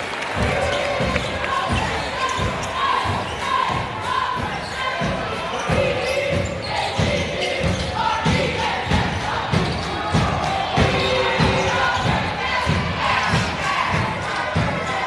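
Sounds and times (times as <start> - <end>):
crowd chatter: 0.0 - 15.0.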